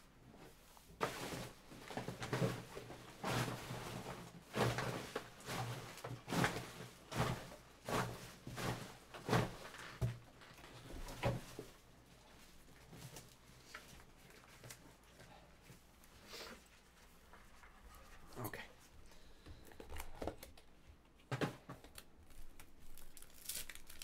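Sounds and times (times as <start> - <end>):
trash rustling and crunching: 1.0 - 14.9.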